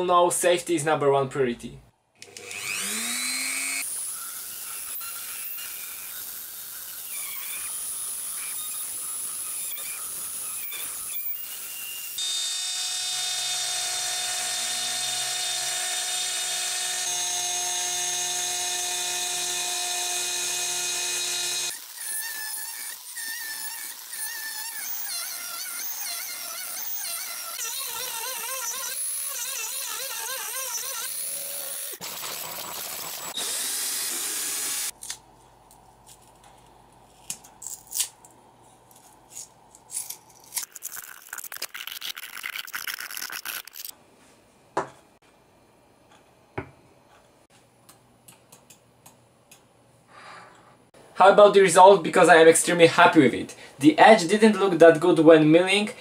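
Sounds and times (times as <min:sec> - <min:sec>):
rotary tool whining: 0:02.2 - 0:34.9.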